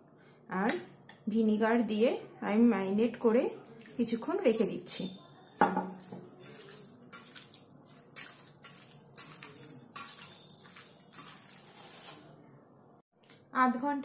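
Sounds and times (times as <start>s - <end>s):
wet squishing of meat: 6.0s - 12.2s.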